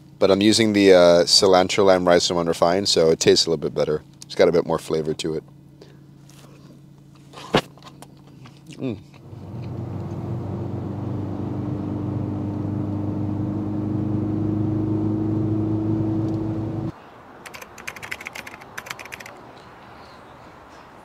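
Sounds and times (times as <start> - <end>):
car engine running: 9.2 - 16.9.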